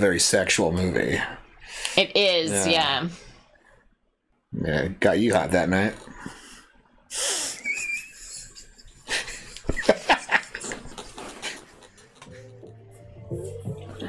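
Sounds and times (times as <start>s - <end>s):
people laughing: 7.6s - 12.6s.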